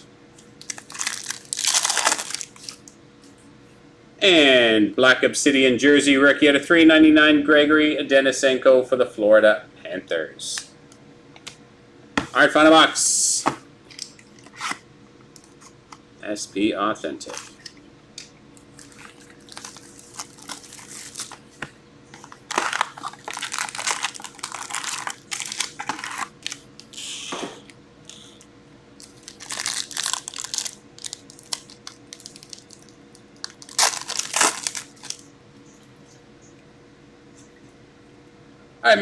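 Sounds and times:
foil wrappers crinkling and tearing: 0.6 - 2.9, 18.8 - 21.4, 22.2 - 26.6, 29.0 - 35.2.

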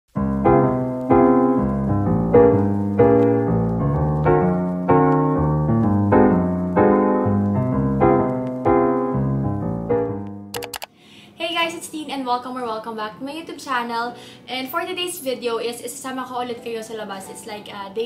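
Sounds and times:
keyboard chords: 0.1 - 10.9.

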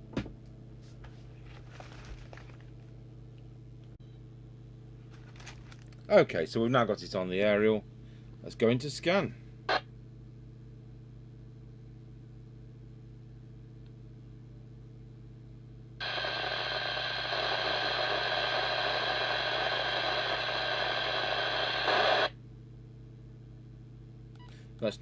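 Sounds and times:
radio static hiss: 16.0 - 22.4.

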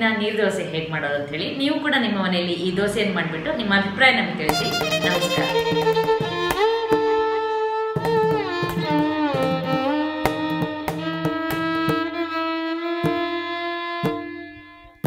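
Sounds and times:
bowed violin melody: 4.4 - 15.0
light percussion strikes: 4.5 - 15.0.

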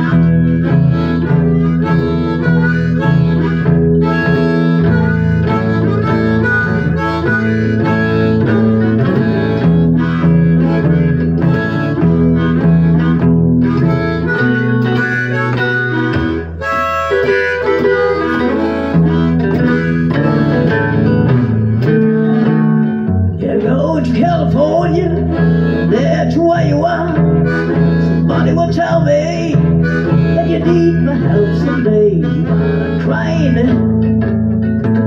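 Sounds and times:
amplified blues harmonica: 0.0 - 35.0
guitar accompaniment: 0.0 - 35.0.

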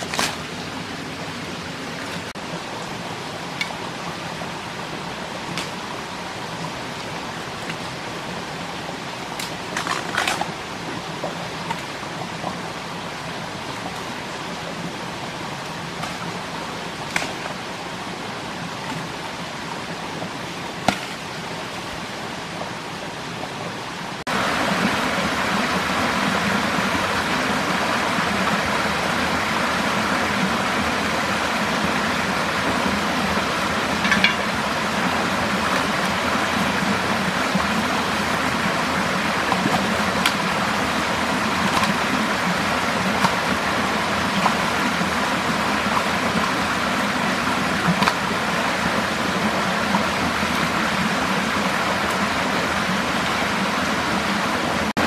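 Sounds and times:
small cascade rushing: 0.0 - 55.0
stream water running: 0.0 - 55.0.

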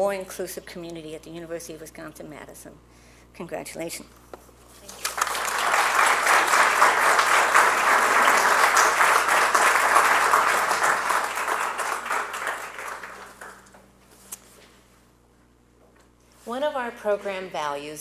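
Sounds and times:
audience applauding: 5.0 - 13.8.

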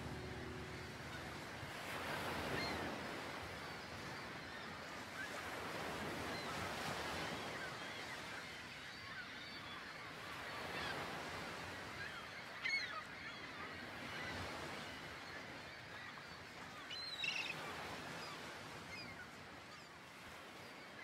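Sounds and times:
sea surf washing onto beach: 0.0 - 7.5.

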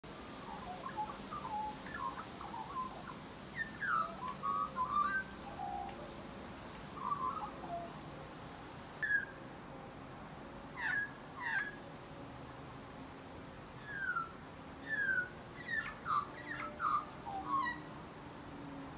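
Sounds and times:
magpie singing: 0.5 - 6.0, 7.0 - 7.9, 9.0 - 9.4, 10.8 - 11.8, 13.8 - 17.9.

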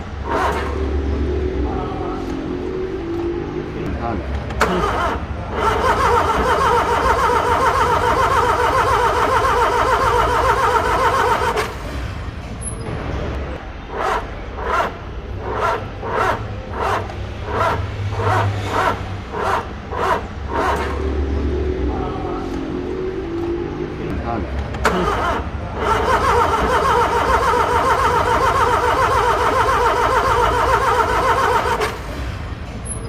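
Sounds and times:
starter motor cranking engine: 0.0 - 1.0, 4.5 - 12.0, 13.8 - 21.2, 24.7 - 32.3.

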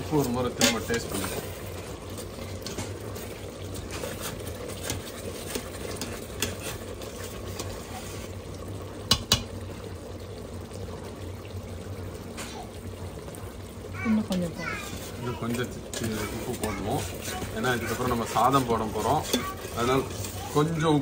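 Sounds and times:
spoon scraping a pot: 0.0 - 8.4, 14.8 - 20.8
curry simmering: 0.0 - 21.0.

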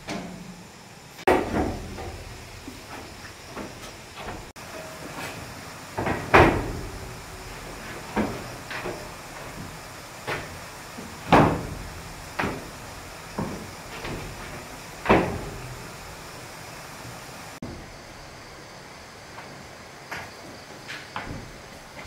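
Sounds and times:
irregular knocks and clunks: 6.0 - 16.0, 20.9 - 21.6.

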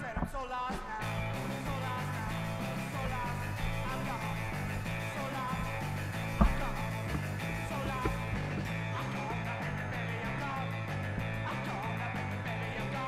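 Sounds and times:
rock music with electric guitar: 0.8 - 13.0
loud thump: 3.0 - 8.7.

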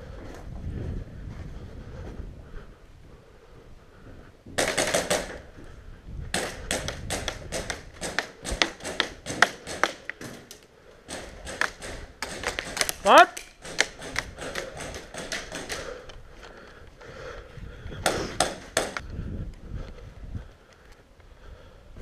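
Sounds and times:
airsoft gunfire: 4.6 - 5.4, 6.4 - 10.1, 11.1 - 15.9.

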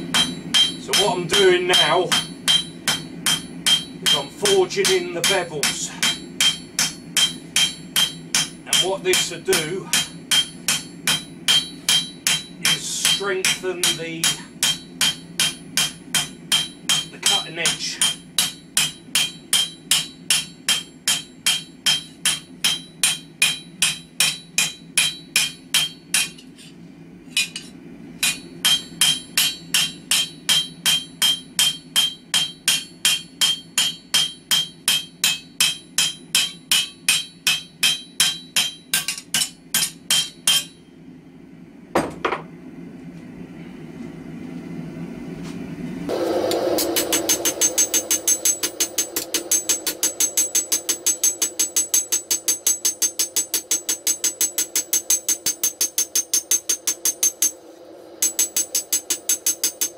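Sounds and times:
hammer ringing on hot steel: 0.0 - 26.6, 27.4 - 41.0, 46.1 - 57.6, 58.2 - 59.9
steady rushing noise: 44.7 - 59.9.

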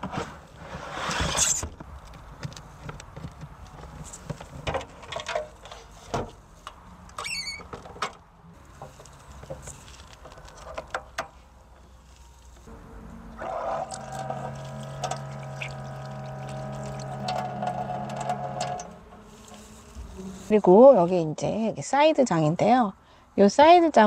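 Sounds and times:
short squeak: 7.2 - 7.7, 13.4 - 19.0
plastic tank scraping: 12.7 - 20.4.

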